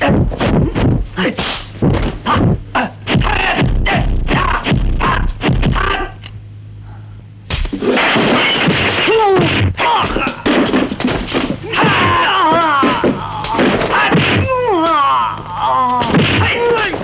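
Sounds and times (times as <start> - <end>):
punch and kick whacks: 0.0 - 2.5, 7.5 - 12.1, 12.8 - 14.6, 16.0 - 16.6
fighters shouting: 2.3 - 6.1, 9.0 - 10.5, 11.6 - 17.0.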